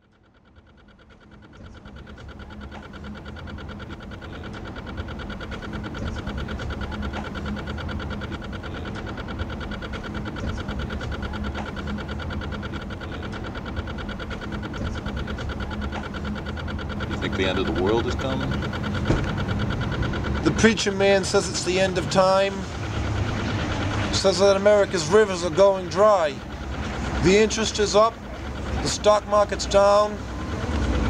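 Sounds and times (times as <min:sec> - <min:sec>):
engine drone: 0:00.0 - 0:31.0
high whine: 0:00.0 - 0:31.0.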